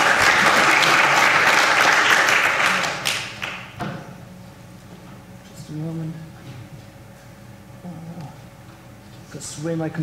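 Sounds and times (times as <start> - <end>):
audience applauding: 0.0 - 3.7.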